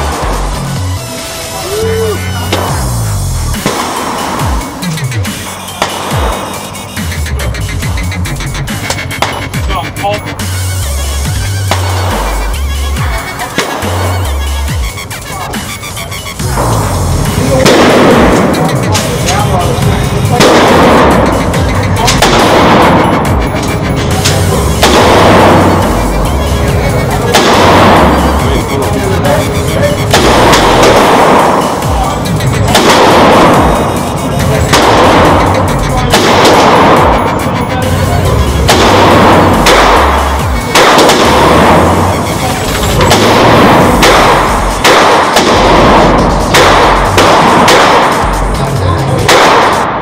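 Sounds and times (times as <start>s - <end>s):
loud background music: 0.0s - 50.0s
rifle firing single shots: 5.7s - 6.7s, 8.9s - 9.6s, 13.5s - 14.2s, 17.4s - 28.6s, 29.6s - 38.0s, 38.7s - 48.4s, 49.2s - 50.0s.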